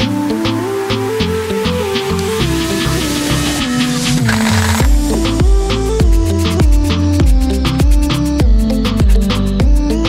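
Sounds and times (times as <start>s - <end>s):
electronic music: 1.4s - 7.0s
steady drum beat: 2.1s - 8.6s.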